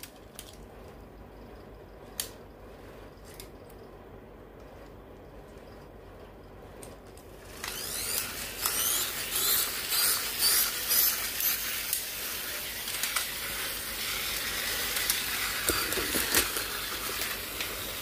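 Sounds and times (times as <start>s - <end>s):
toy pull string whir: 7.4s - 18.0s
wind-up toys whirring on tile: 7.4s - 18.0s.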